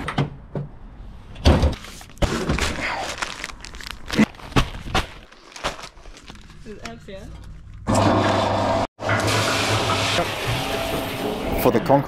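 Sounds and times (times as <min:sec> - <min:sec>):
paper bag crinkling: 0:01.8 - 0:06.7.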